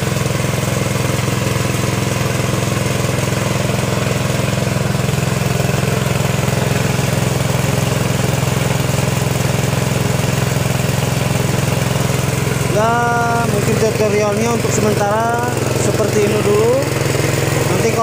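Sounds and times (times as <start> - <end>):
small petrol engine running: 0.0 - 18.0
winch winding wire rope: 0.0 - 18.0.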